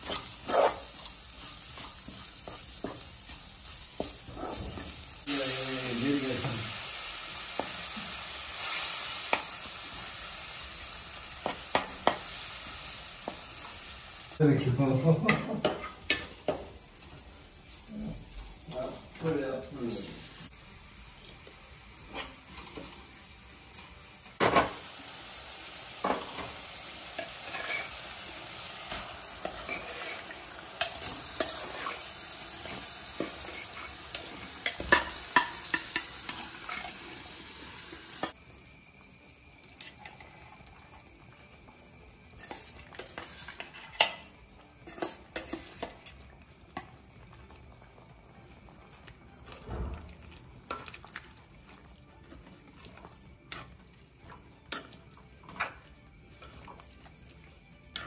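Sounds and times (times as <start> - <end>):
food sizzling in a hot pan: 0.0 - 58.0
metal spoon scraping a pan: 27.2 - 28.2, 29.4 - 37.0, 42.4 - 46.2.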